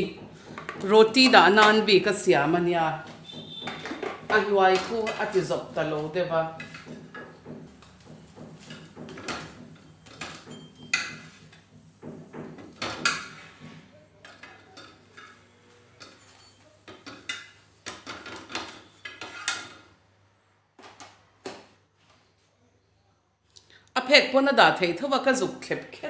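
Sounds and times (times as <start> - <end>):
metal spatula scraping a griddle: 8.5 - 11.9, 12.6 - 19.9.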